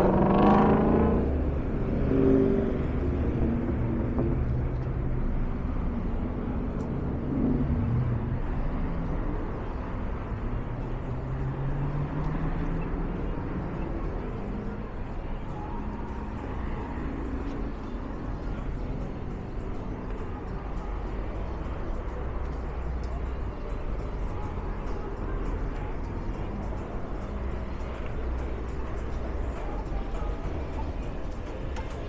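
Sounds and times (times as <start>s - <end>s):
vehicle engine pulling away: 0.0s - 4.8s
cars passing: 0.0s - 32.0s.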